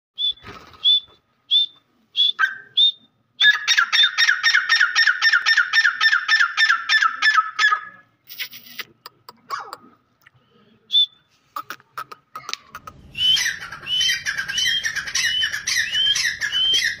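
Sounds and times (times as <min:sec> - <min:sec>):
francolin calling: 0:12.8 - 0:17.0.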